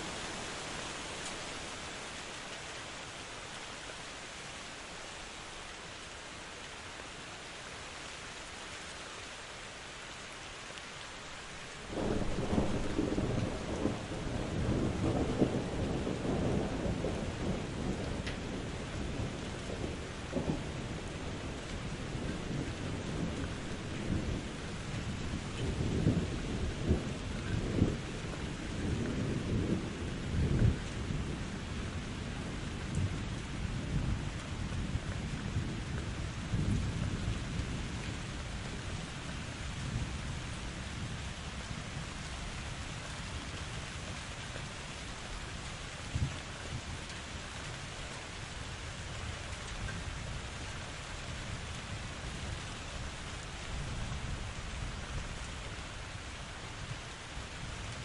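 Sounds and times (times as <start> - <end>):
steady rain: 0.0 - 58.0
rolling thunder: 11.9 - 39.1.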